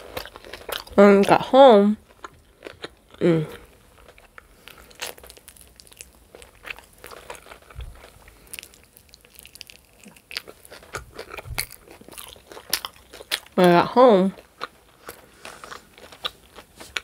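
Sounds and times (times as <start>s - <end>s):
chewing chicken wings: 0.0s - 1.4s, 4.0s - 13.6s
soft low thumps: 11.4s - 11.8s.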